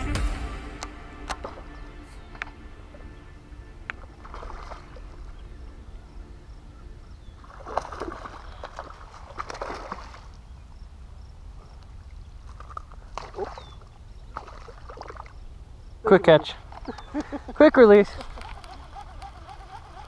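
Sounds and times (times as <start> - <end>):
fish splashing in water: 4.2 - 5.3, 7.4 - 10.4, 12.5 - 15.4.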